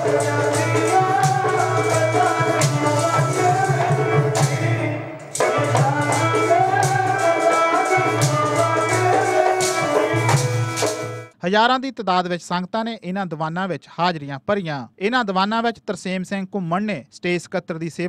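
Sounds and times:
quick percussion beat: 0:00.0 - 0:11.3
sustained harmonium tones: 0:00.1 - 0:11.3.

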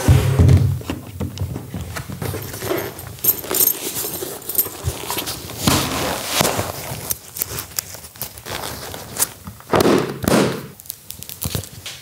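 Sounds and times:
padding and clothing rustling: 0:00.0 - 0:09.5.

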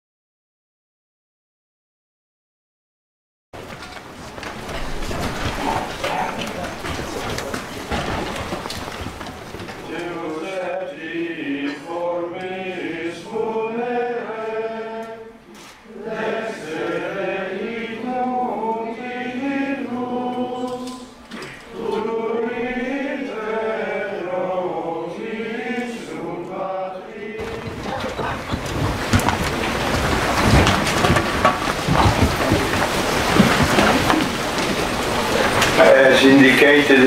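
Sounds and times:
group of people singing: 0:09.7 - 0:28.5.

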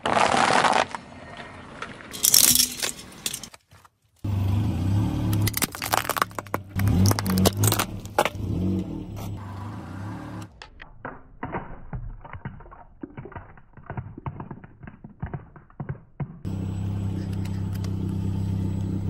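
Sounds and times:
tyre crunching peanuts: 0:00.0 - 0:01.0, 0:02.1 - 0:04.0, 0:05.3 - 0:08.4
car engine humming low: 0:04.3 - 0:10.5, 0:16.5 - 0:19.0
plastic figurine cracking: 0:05.4 - 0:07.9.

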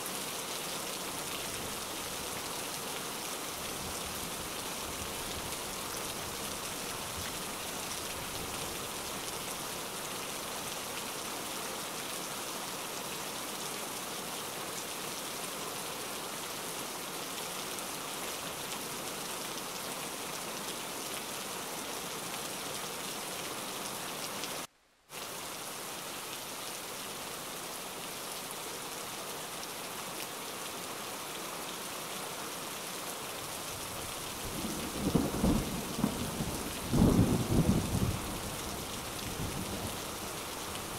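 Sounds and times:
steady rain falling: 0:00.0 - 0:40.9
low rumble of thunder: 0:34.6 - 0:40.0.

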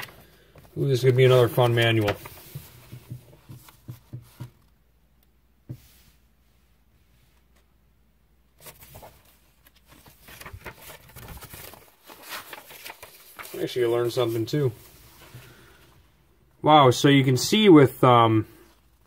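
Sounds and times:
pages rustling and turning: 0:00.0 - 0:04.7, 0:08.6 - 0:15.6.

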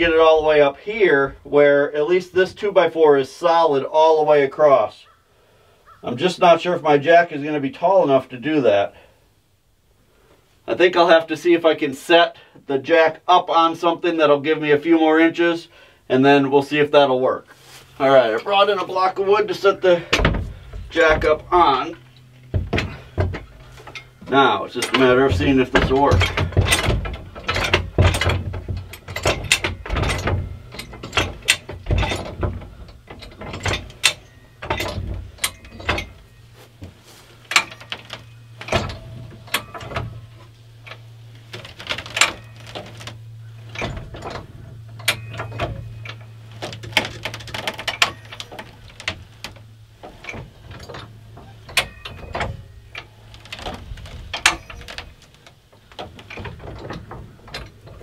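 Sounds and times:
low steady hum: 0:00.0 - 0:58.0
jack clacking and ratcheting: 0:18.2 - 0:58.0.

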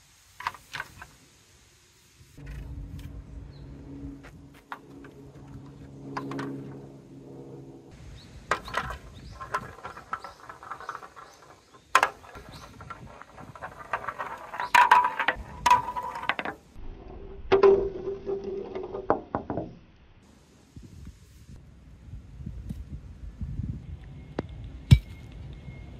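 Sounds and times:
steady hum: 0:02.4 - 0:11.2
balls knocking on plastic: 0:08.5 - 0:16.6
balls rolling down plastic track: 0:08.5 - 0:16.8.

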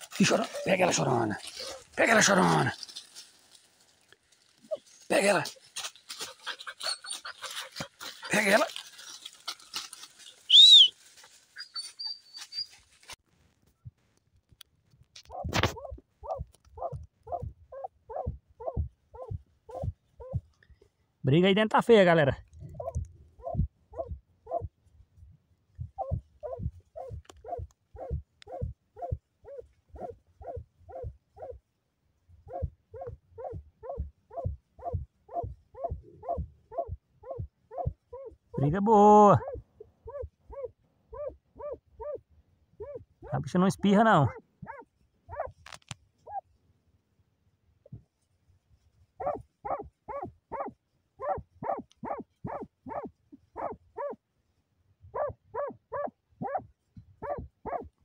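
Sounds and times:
dog barking: 0:15.3 - 0:20.4, 0:22.8 - 0:24.7, 0:26.0 - 0:31.6, 0:32.5 - 0:38.3, 0:39.4 - 0:42.2, 0:42.8 - 0:43.4, 0:44.2 - 0:45.6, 0:49.2 - 0:54.2, 0:55.1 - 0:57.9.

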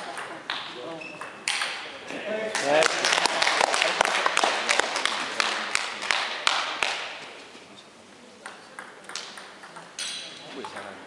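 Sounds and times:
crowd clapping: 0:02.5 - 0:07.2.

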